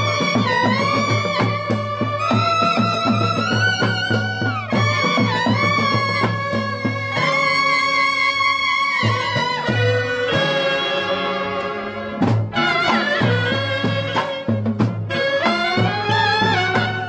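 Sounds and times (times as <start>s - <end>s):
brass band playing: 0.0s - 17.0s.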